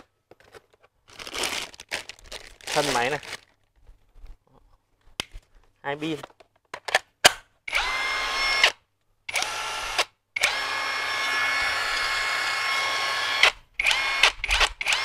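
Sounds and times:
impact wrench whine: 7.7 - 15.0.

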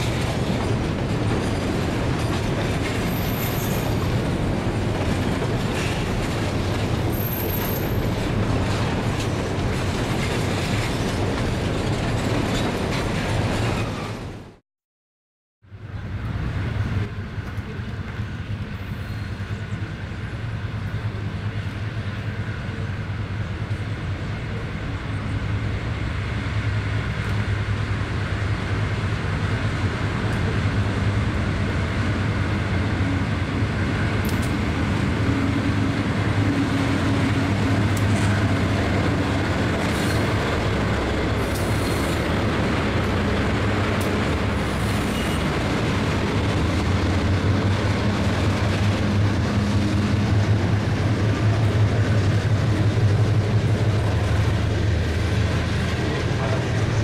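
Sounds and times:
diesel locomotive engine drone: 0.0 - 14.6, 15.6 - 57.0.

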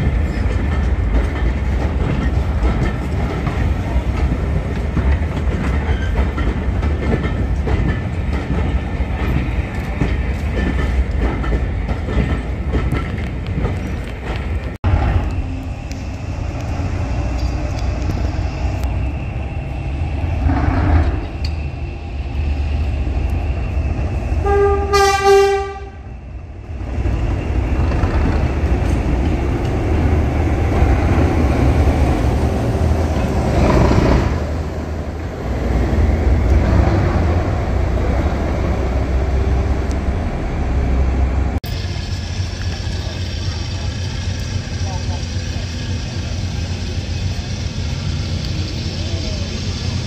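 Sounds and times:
diesel locomotive engine running: 0.0 - 50.0
locomotive horn: 24.4 - 26.1.

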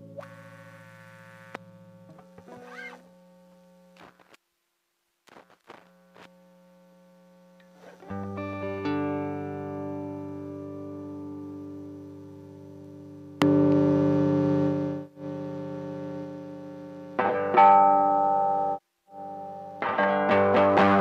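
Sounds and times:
electric guitar through effects: 8.0 - 21.0.

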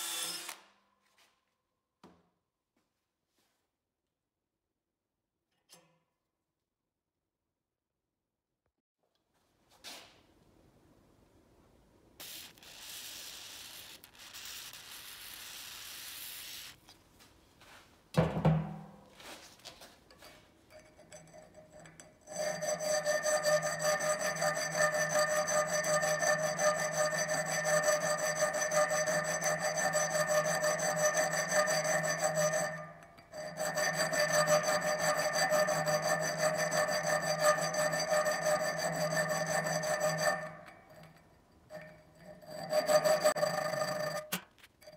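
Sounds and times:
electric rotary tool scraping metal: 0.0 - 0.6, 22.3 - 44.9.

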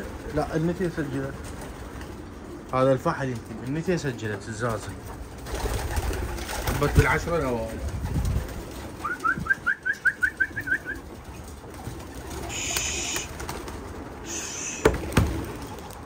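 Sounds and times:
pigeons cooing: 0.0 - 16.0
short rising chirps: 14.3 - 14.9
sharp knocks: 14.8 - 15.5.

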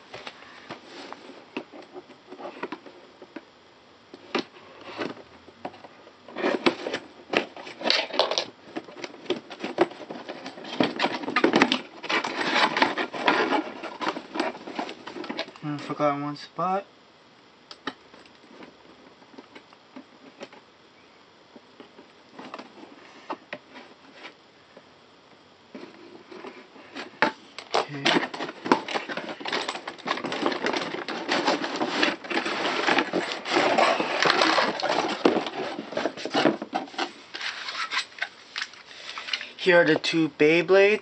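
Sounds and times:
small clicks and scrapes: 0.2 - 3.5, 25.7 - 39.5
cardboard crackling and rustling: 4.3 - 15.6, 25.7 - 38.8.

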